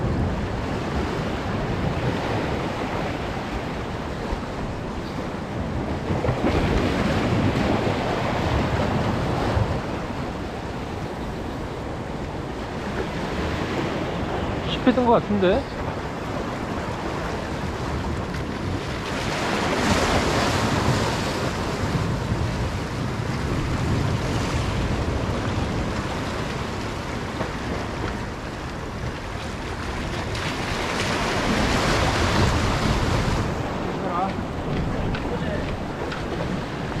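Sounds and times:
waves washing against rocks: 0:00.0 - 0:37.0
wind buffeting microphone: 0:00.0 - 0:37.0.

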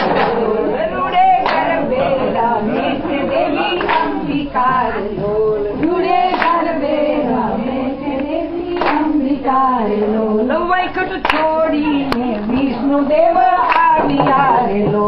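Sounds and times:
hand claps: 0:00.0 - 0:00.6, 0:01.4 - 0:01.8, 0:03.3 - 0:04.2, 0:05.8 - 0:06.7, 0:08.1 - 0:09.2, 0:11.2 - 0:12.7, 0:13.6 - 0:15.0
women singing together: 0:00.0 - 0:15.0.

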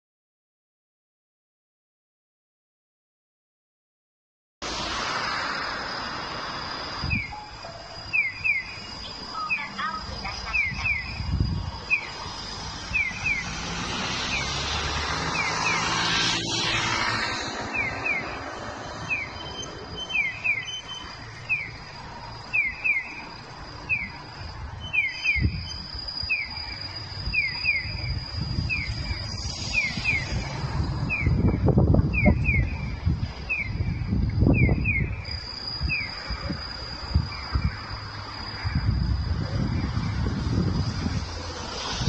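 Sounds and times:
cars passing: 0:04.6 - 0:42.0
crossing signal electronic chirps: 0:06.8 - 0:15.9, 0:16.7 - 0:39.0.

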